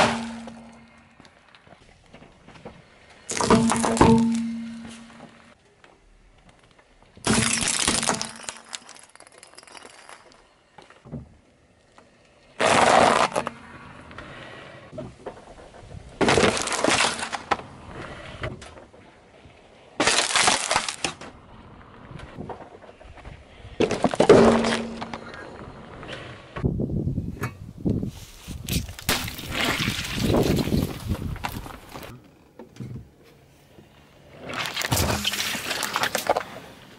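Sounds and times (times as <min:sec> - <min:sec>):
glass bulbs shattering under tyre: 0:03.3 - 0:04.8, 0:07.2 - 0:10.4, 0:16.2 - 0:17.5, 0:20.0 - 0:21.2, 0:28.7 - 0:32.1, 0:34.5 - 0:36.6
tyre crushing objects: 0:28.6 - 0:32.2, 0:34.4 - 0:36.6.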